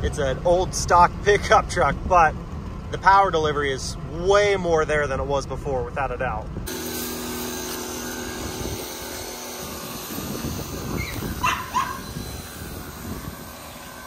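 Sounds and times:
pressure washer spraying: 6.7 - 14.0.

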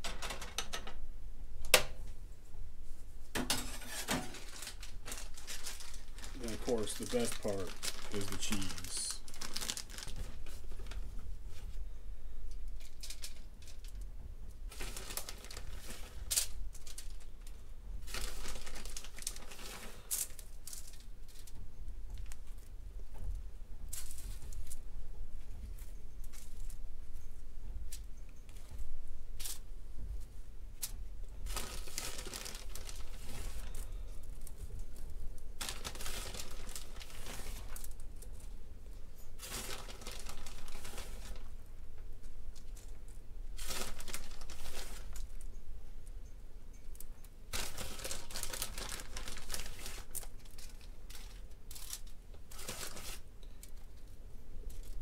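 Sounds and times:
plastic bag crinkling: 3.8 - 11.1, 14.7 - 21.6, 31.5 - 35.0, 35.6 - 38.6, 39.3 - 41.6, 42.6 - 45.5, 47.5 - 55.0.

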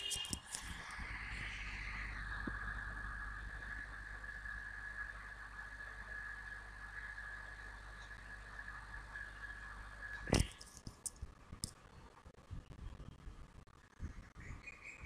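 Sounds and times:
steady low hum: 0.0 - 14.6
faint high-pitched whine: 0.0 - 15.0.

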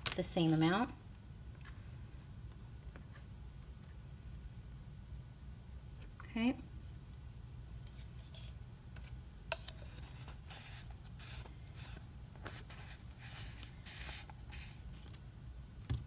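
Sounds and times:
low steady hum: 0.0 - 16.0
hands rustling craft supplies: 9.5 - 15.2.

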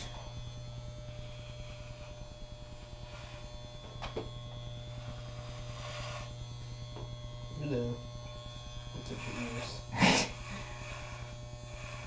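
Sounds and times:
electric hair clippers buzzing: 0.0 - 12.0.

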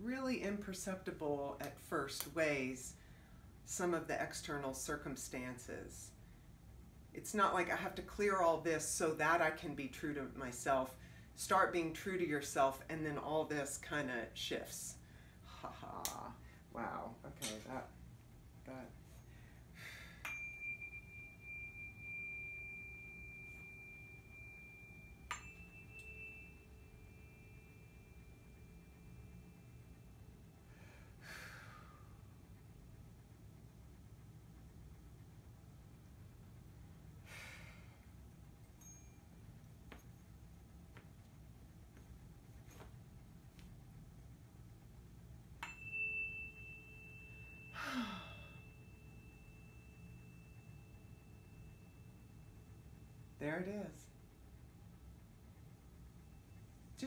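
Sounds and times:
person sighing: 15.5 - 16.5, 47.8 - 48.6
tuning fork ringing: 18.4 - 33.3, 36.0 - 41.1, 44.4 - 57.0
tuning fork struck with tap: 20.2 - 30.1, 45.6 - 47.8.

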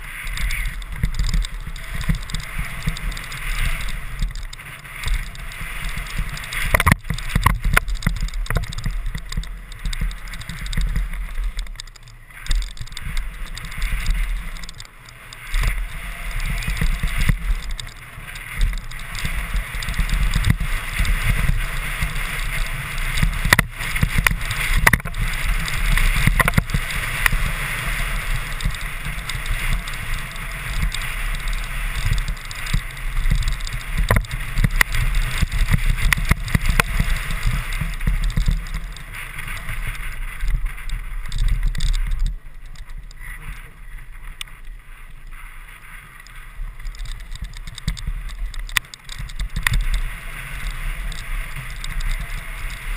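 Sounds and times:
tyres hissing on loose dirt: 0.0 - 42.5
bike rattling: 0.0 - 52.9
wind rumble on microphone: 0.0 - 52.9.

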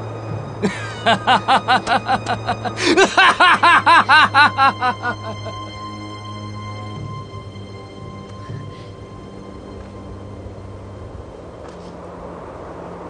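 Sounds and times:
film score music: 0.0 - 13.0
man laughing hard: 0.6 - 5.7.

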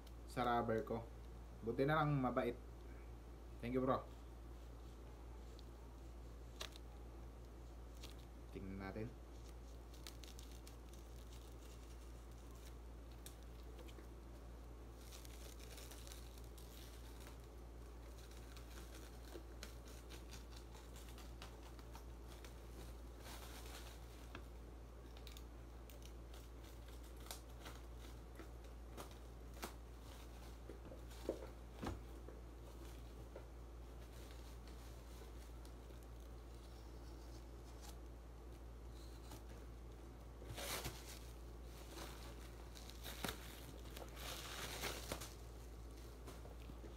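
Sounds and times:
plastic wrap tearing: 9.3 - 14.0, 14.9 - 22.0, 40.6 - 45.6.

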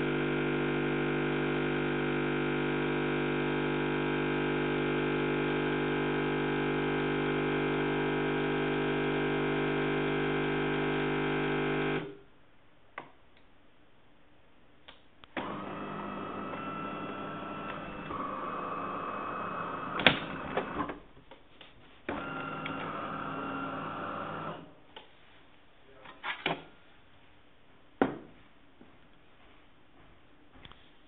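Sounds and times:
coffee machine pump running: 0.0 - 12.1, 15.4 - 20.9, 22.1 - 24.7.

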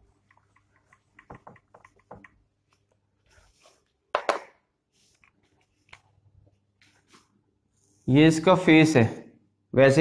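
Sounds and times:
marker scratching on whiteboard: 0.2 - 2.4.

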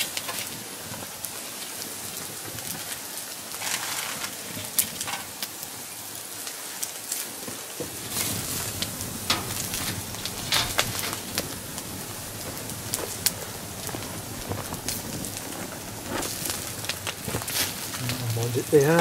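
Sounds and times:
campfire crackling: 0.0 - 19.0
meat sizzling on a grill: 0.0 - 19.0.

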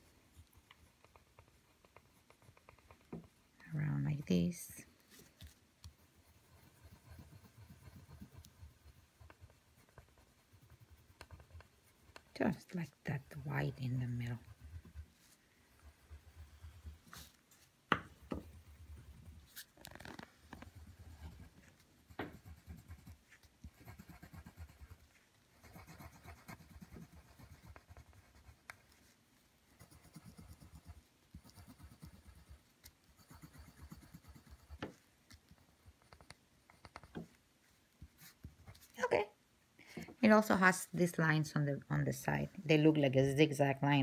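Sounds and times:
pencil scratching on paper: 5.2 - 29.1, 29.7 - 37.4.

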